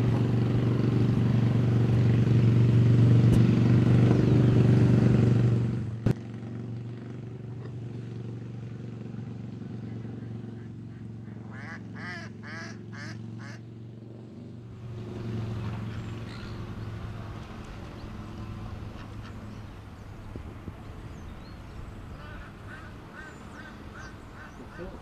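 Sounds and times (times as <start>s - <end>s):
duck quacking: 9.9s - 13.6s, 22.2s - 25.0s.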